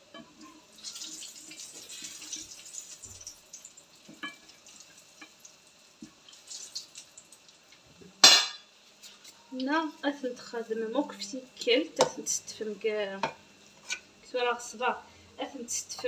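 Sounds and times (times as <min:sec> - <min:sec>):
food sizzling in hot oil: 0:00.0 - 0:09.1.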